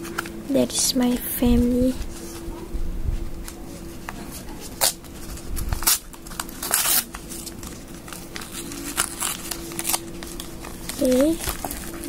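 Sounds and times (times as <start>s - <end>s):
paper mailer rustling and crinkling: 3.4s - 12.0s.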